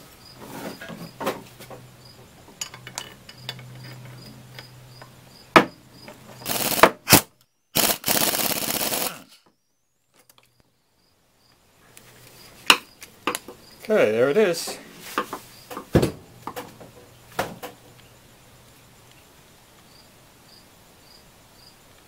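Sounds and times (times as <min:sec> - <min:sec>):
air ratchet rattling: 0:06.4 - 0:07.2, 0:07.8 - 0:09.2.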